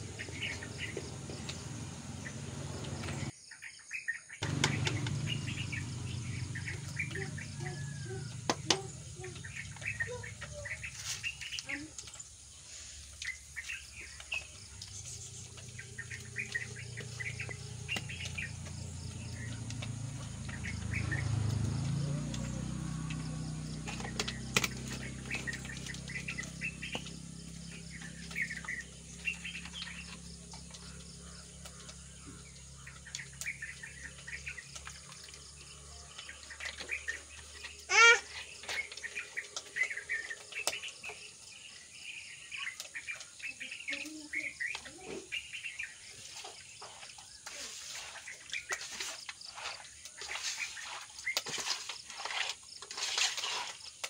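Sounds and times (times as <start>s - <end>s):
small birds chirping: 0.0s - 54.0s
loud bird call: 37.8s - 40.8s.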